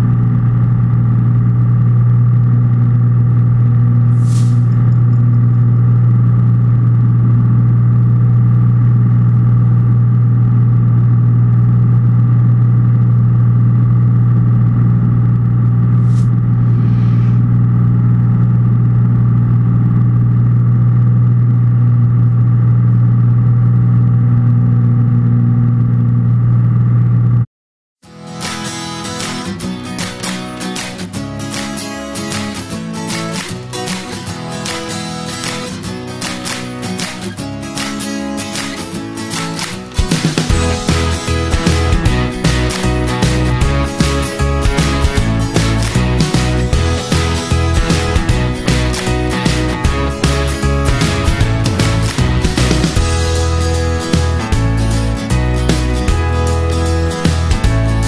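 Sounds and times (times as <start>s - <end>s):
airplane engine drone: 0.0s - 27.3s
brief high-pitched sounds: 4.2s - 5.0s, 16.0s - 17.5s.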